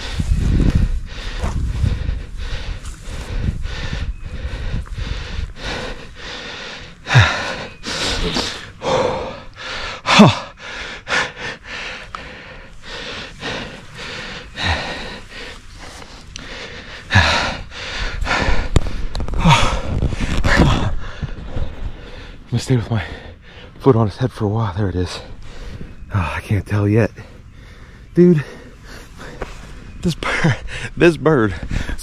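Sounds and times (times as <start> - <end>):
man breathing hard and gasping: 0.0 - 23.8.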